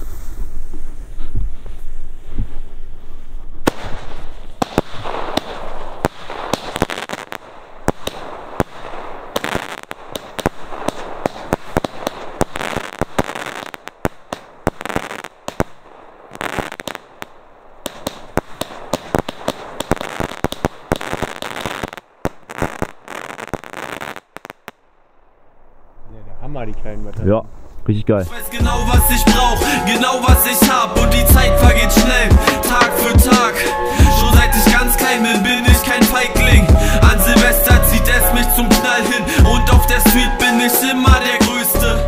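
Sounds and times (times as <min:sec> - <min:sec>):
fireworks bangs and bursts: 0:03.6 - 0:24.9, 0:28.4 - 0:41.8.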